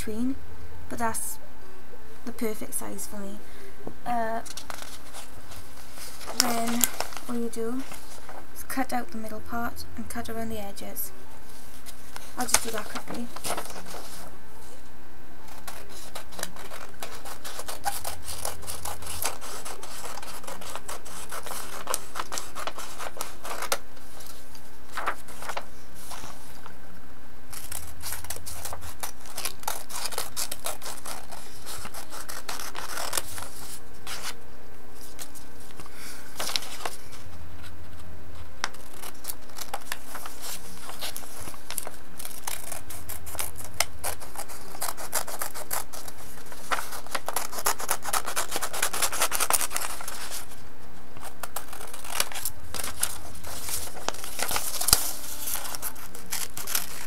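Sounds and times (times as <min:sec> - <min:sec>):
paper rustling: 0:04.4 - 0:08.5, 0:11.4 - 0:14.9, 0:15.5 - 0:26.8, 0:27.5 - 0:34.4, 0:35.0 - 0:50.6, 0:51.2 - 0:57.0
scissors snipping paper: 0:06.3 - 0:07.5, 0:12.4 - 0:14.0, 0:15.5 - 0:23.8, 0:27.5 - 0:34.3, 0:38.6 - 0:50.4, 0:51.2 - 0:57.0.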